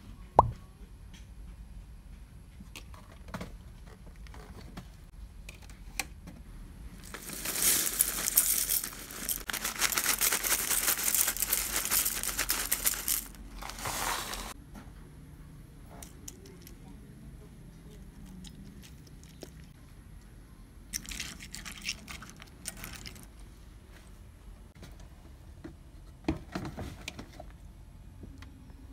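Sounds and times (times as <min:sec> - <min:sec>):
foil bag crinkling: 0:07.0 - 0:14.6
corn flakes poured into glass bowl: 0:07.1 - 0:14.4.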